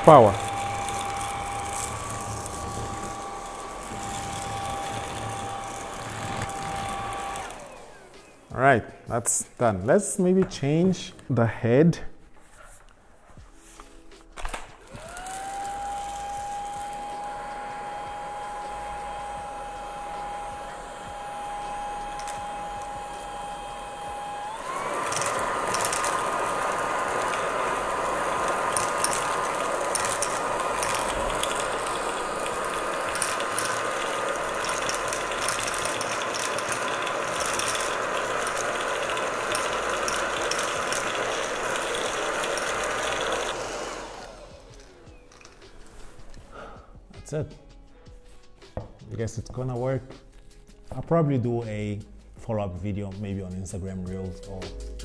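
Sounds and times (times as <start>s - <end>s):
handheld vacuum motor whining: 0.0s - 8.5s, 14.8s - 46.7s
dry kibble rattling through nozzle: 24.8s - 43.6s.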